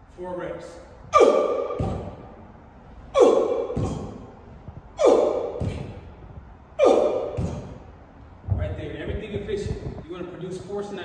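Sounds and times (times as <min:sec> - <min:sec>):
person grunting: 0:03.1 - 0:04.2, 0:05.0 - 0:06.0, 0:06.8 - 0:07.8.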